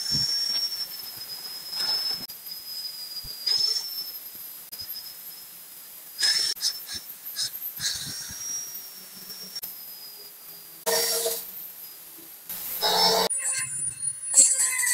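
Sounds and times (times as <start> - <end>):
angle grinder whine: 10.8 - 11.5, 12.5 - 14.9.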